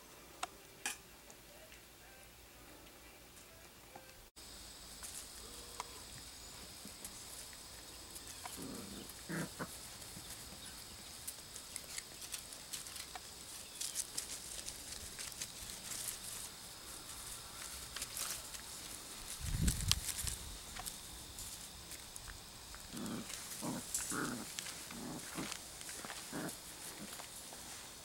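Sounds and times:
puppies scampering on grass: 6.6 - 28.0.

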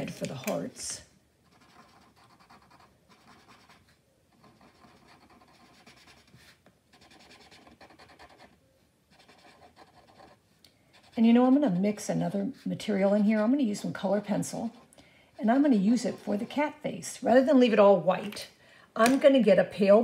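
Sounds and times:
marker scratching on paper: 1.4 - 12.8, 15.5 - 16.7.

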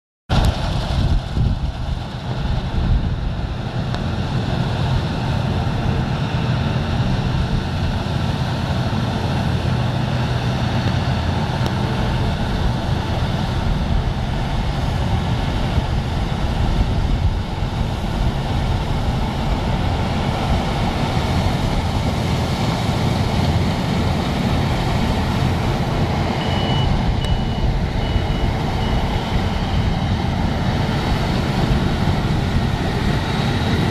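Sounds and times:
combine harvester engine drone: 0.3 - 33.9
short high beeps: 26.4 - 29.9.

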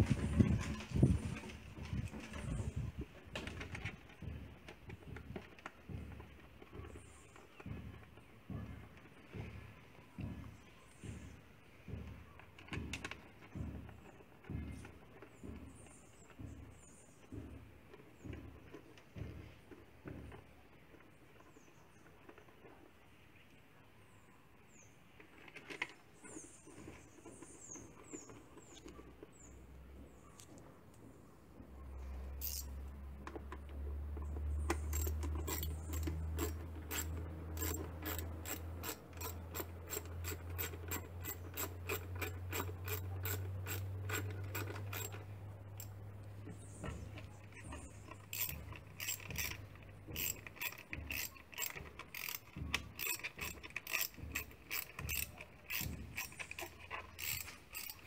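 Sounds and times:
socket ratchet clicking: 32.4 - 32.8, 34.7 - 46.0, 48.1 - 58.0.

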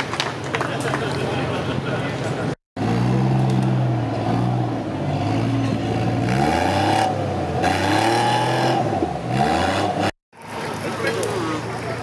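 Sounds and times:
car engine revving under load: 2.8 - 10.2.

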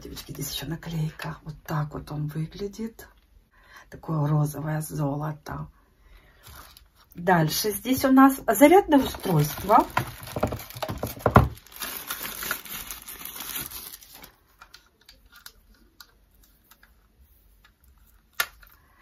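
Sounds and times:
tissue paper rustling: 8.9 - 14.7
knock: 10.4 - 11.6.

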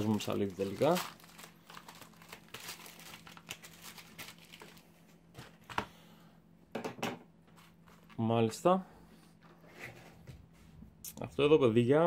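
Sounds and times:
plastic bag crinkling and tearing: 0.0 - 4.9.

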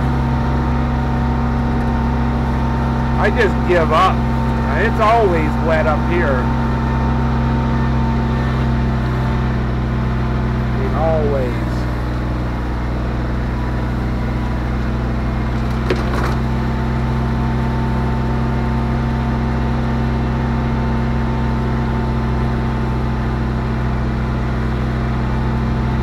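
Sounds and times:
farm vehicle engine running: 0.0 - 26.0.

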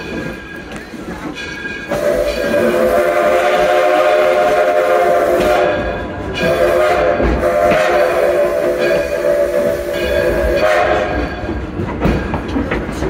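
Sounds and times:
steam locomotive whistle: 1.8 - 11.6.

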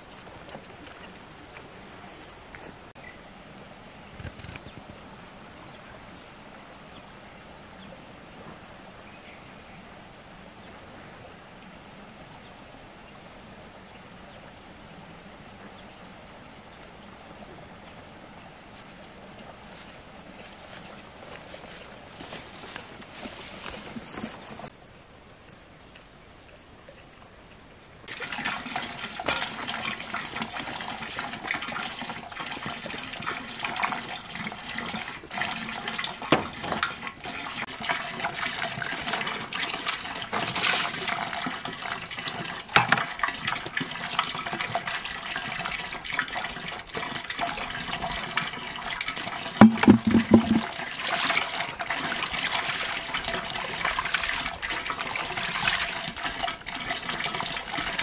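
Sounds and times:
water running and splashing: 0.0 - 3.0, 28.1 - 58.0.

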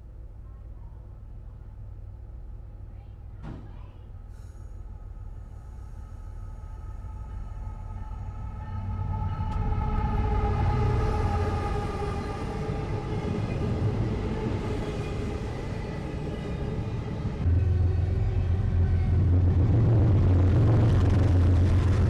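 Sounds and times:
freight train rumbling past: 4.2 - 22.0.

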